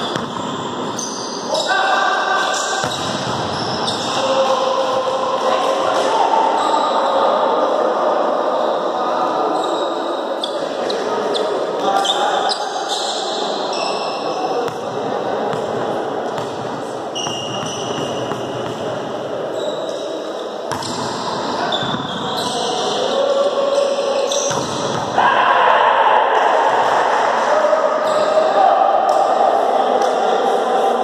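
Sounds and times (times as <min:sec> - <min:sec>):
sneakers squeaking on court: 0:00.0 - 0:01.5, 0:02.6 - 0:04.2, 0:15.5 - 0:23.0, 0:23.7 - 0:25.1.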